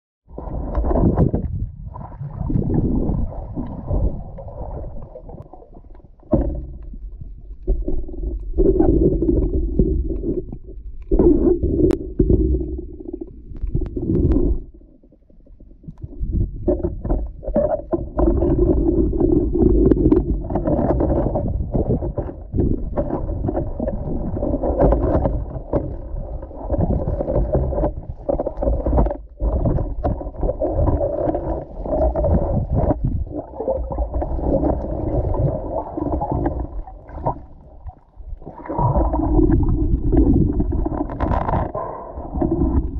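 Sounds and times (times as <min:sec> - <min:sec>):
muffled underwater water gurgling: 0:00.3 - 0:42.9.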